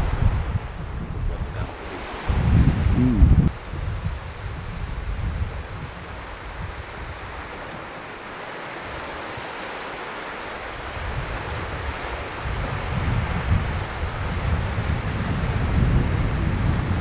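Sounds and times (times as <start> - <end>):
sea waves washing on shore: 0.0 - 17.0
wind buffeting microphone: 0.0 - 17.0.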